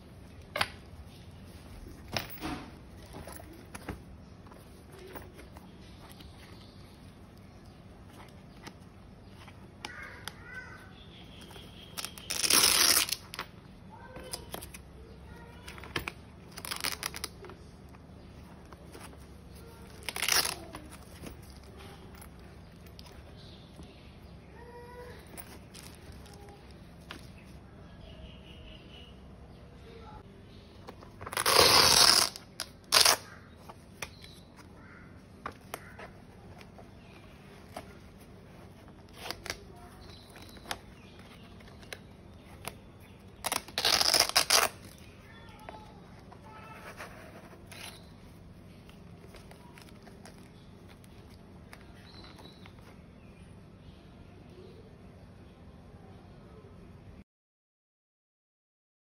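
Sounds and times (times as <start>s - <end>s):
fabric and plastic rustling: 0.0s - 27.8s, 30.5s - 53.4s
hook-and-loop strap ripping: 11.4s - 14.9s, 15.6s - 17.6s, 18.6s - 23.4s, 25.2s - 27.4s, 30.8s - 34.7s, 35.4s - 52.9s
bag ripping open: 12.0s - 13.4s, 16.0s - 17.4s, 19.6s - 22.2s, 31.2s - 33.4s, 42.6s - 45.1s.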